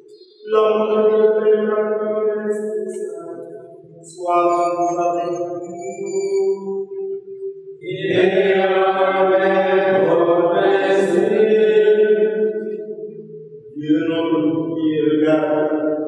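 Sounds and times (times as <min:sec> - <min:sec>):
sung chant in long notes: 0:07.8 - 0:12.8, 0:13.7 - 0:16.0.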